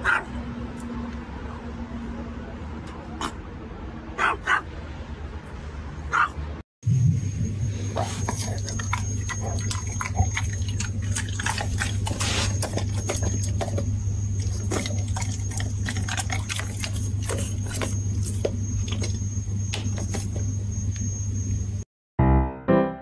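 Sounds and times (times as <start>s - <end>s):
steady low hum: 6.8s - 21.8s
dog licking and smacking lips: 8.0s - 19.2s.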